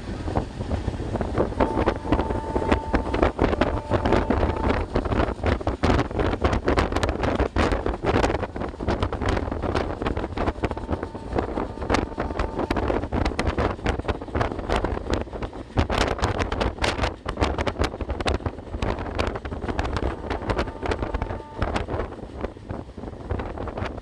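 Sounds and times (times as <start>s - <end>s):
train rumble and rattle: 0.0s - 24.0s
wind buffeting microphone: 0.0s - 24.0s.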